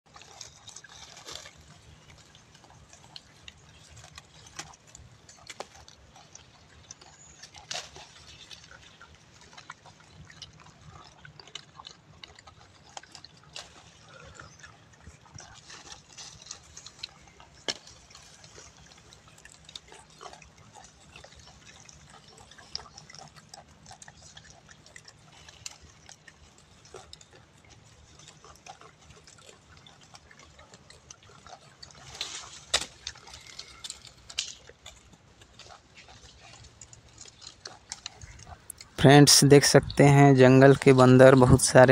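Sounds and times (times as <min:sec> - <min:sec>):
branches snapping and leaves rustling: 0:32.1 - 0:34.6.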